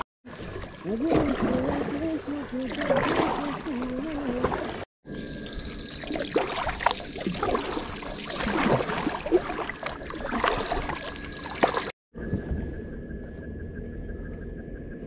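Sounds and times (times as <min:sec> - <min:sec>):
river water lapping and gurgling: 0:00.2 - 0:12.0.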